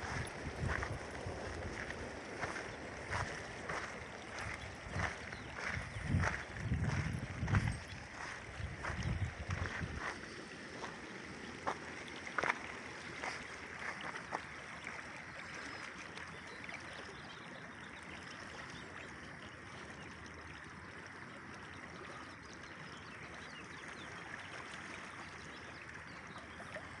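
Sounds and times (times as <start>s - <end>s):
creek running over gravel: 0.0s - 27.0s.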